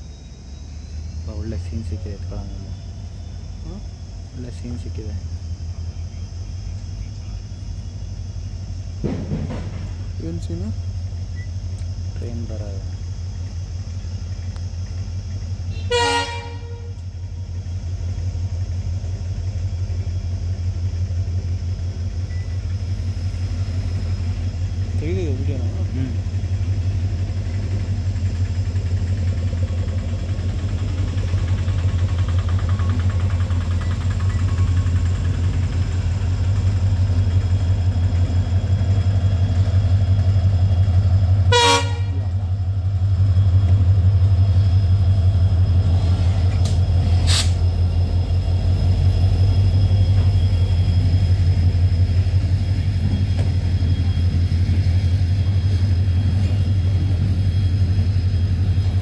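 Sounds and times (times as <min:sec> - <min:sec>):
diesel locomotive engine rumble: 0:00.0 - 0:59.0
wagons rolling along track: 0:27.5 - 0:40.5.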